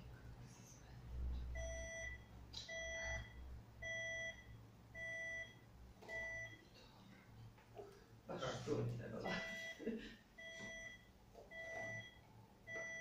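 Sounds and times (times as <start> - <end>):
short electronic beeps: 1.6 - 6.6, 10.4 - 13.0.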